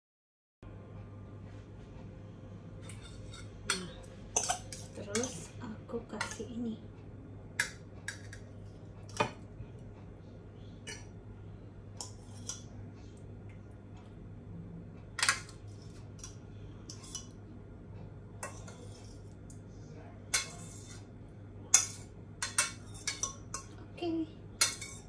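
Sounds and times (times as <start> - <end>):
low steady hum: 0.6 - 25.0
metal utensil scraping a saucepan: 2.8 - 5.5, 12.0 - 12.7, 18.4 - 19.4, 20.3 - 21.1, 21.7 - 23.7, 24.6 - 25.0.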